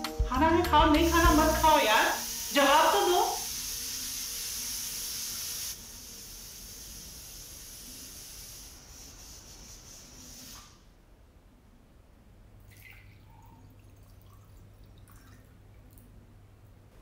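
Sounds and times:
steady hiss: 0.8 - 11.0
water poured into a glass: 12.7 - 15.6.

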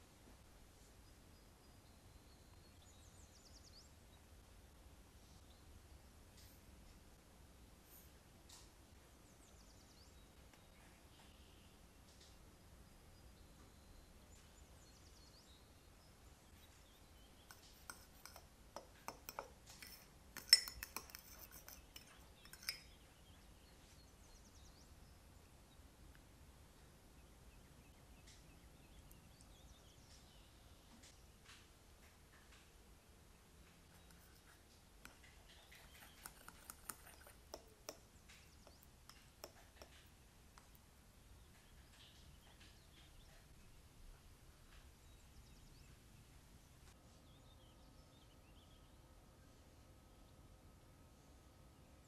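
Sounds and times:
fork scraping and clinking in mug: 16.6 - 23.0, 33.9 - 40.1.

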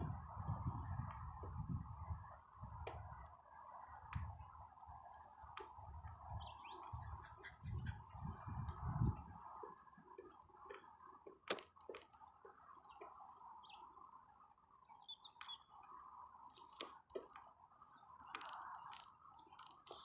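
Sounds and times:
bicycle clicks and rattles: 10.2 - 12.6, 16.5 - 20.0.

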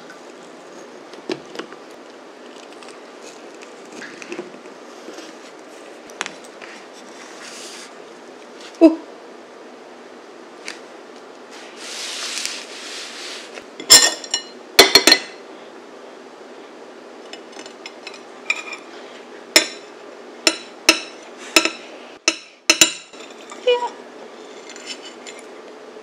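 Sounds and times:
soft rustle: 11.5 - 13.7
metal clinking on glass plate: 13.8 - 15.4.

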